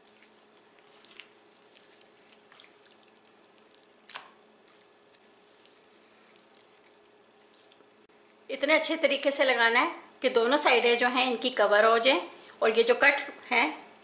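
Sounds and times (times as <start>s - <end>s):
wet squelching of hand rubbing marinade: 0.0s - 8.1s.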